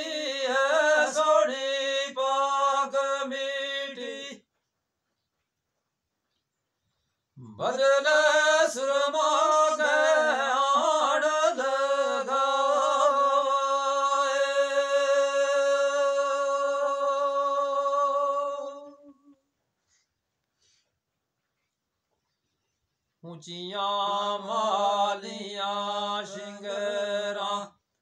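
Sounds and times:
man singing unaccompanied: 0:00.0 - 0:04.5, 0:07.4 - 0:19.4, 0:23.2 - 0:27.9.

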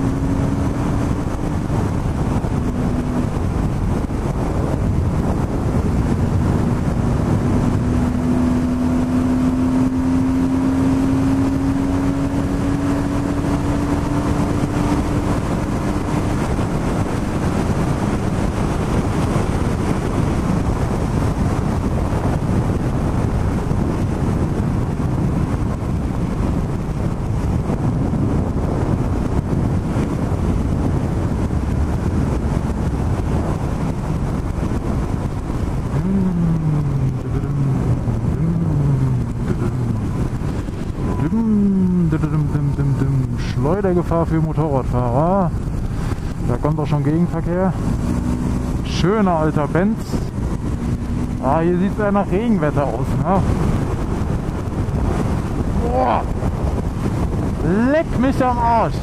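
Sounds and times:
motorcycle engine running: 0:00.0 - 0:58.9
wind and road noise: 0:00.0 - 0:59.0.

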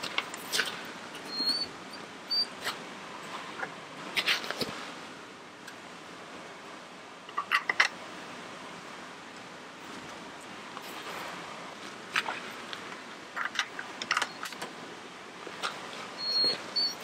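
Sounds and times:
brief high squeak: 0:01.3 - 0:01.7.

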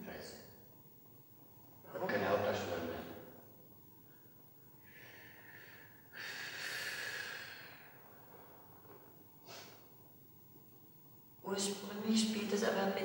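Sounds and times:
short sniff: 0:09.4 - 0:09.9.

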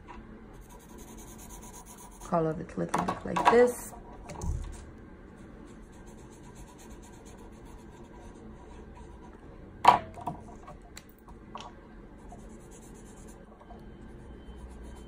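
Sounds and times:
marker rubbing on paper: 0:00.6 - 0:02.3, 0:05.7 - 0:09.3.

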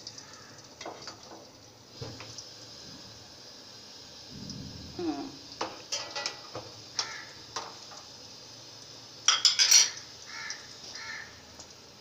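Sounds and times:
metal utensils clattering on dishes: 0:05.6 - 0:07.8, 0:09.3 - 0:10.0.

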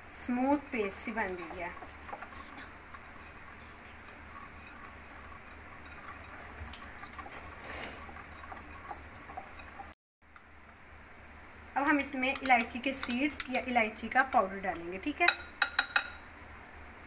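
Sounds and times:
whisk swishing in bowl: 0:00.1 - 0:10.0.

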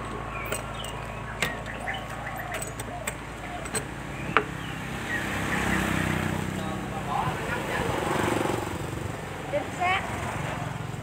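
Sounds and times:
bird chirps: 0:00.0 - 0:06.7.

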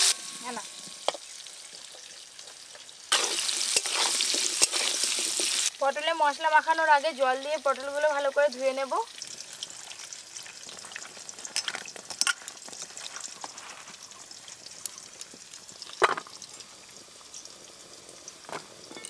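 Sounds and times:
water pouring and splashing: 0:00.0 - 0:05.8, 0:08.6 - 0:19.0
potatoes sizzling in hot oil: 0:00.0 - 0:19.0.

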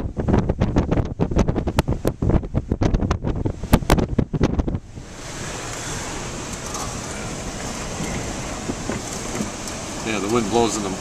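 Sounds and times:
wind buffeting microphone: 0:00.0 - 0:11.0
heavy surf hissing: 0:04.8 - 0:11.0.

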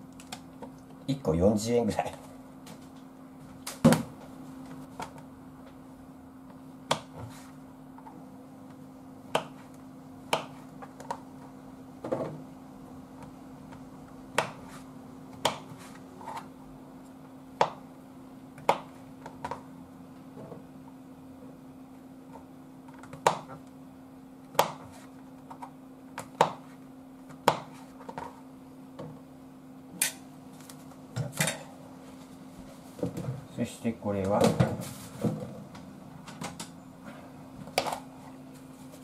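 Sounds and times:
steady low hum: 0:00.0 - 0:39.0
knife chopping on cutting board: 0:09.3 - 0:09.6, 0:10.3 - 0:11.1, 0:14.3 - 0:14.8, 0:15.4 - 0:16.4, 0:24.5 - 0:25.0, 0:26.2 - 0:26.7, 0:27.3 - 0:28.2.

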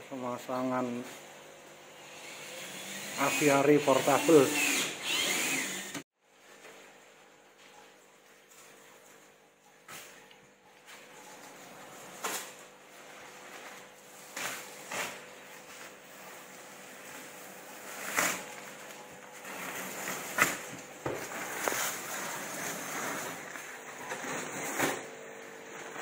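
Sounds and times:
protective film peeling crackle: 0:12.1 - 0:25.1.

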